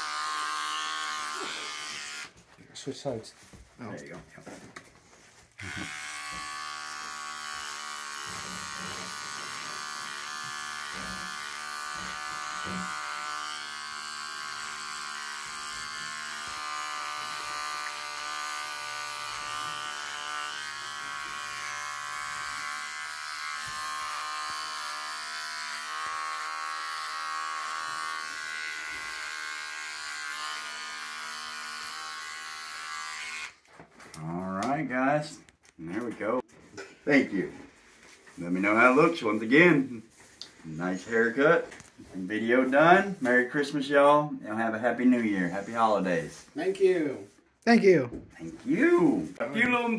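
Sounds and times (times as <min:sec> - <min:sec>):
electric hair trimmer buzzing: 0:00.0 - 0:02.4, 0:05.6 - 0:33.6.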